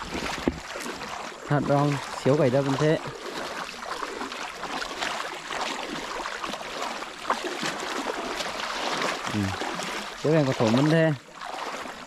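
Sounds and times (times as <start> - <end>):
sharp water splash: 0.0 - 12.0
water swishing around wading legs: 0.0 - 12.0.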